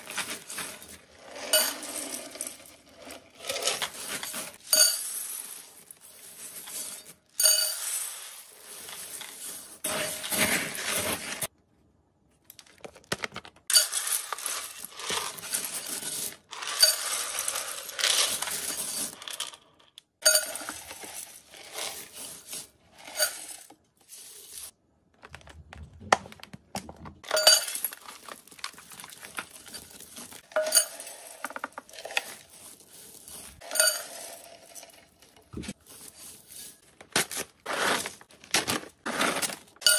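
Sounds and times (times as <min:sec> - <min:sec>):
metal scoop clinking: 0:00.0 - 0:11.5, 0:13.7 - 0:19.6, 0:20.2 - 0:24.7, 0:27.2 - 0:39.9
dry pellets pouring into plastic tub: 0:07.8 - 0:11.5, 0:13.9 - 0:19.6, 0:28.0 - 0:35.2.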